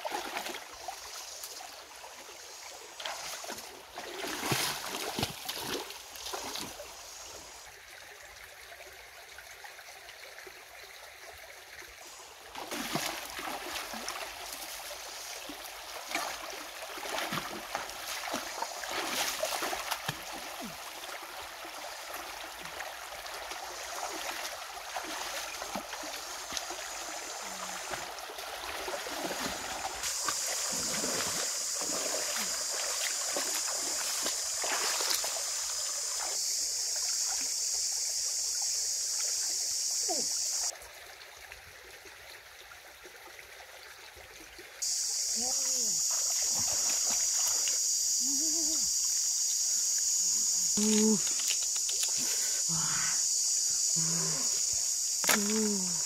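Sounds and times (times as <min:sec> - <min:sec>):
feet wading through water: 0:00.0 - 0:01.5, 0:02.8 - 0:07.1, 0:12.2 - 0:36.4, 0:45.8 - 0:47.8
stream running over rocks: 0:00.0 - 0:56.0
high-pitched hiss: 0:06.3 - 0:07.7, 0:18.1 - 0:19.8, 0:29.2 - 0:40.7, 0:44.8 - 0:56.0.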